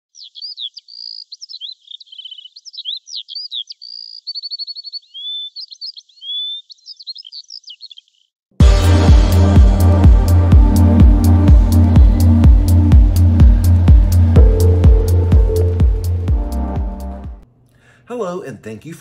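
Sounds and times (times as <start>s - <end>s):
songbird singing: 0.1s - 8.4s
loud electronic music: 8.6s - 17.4s.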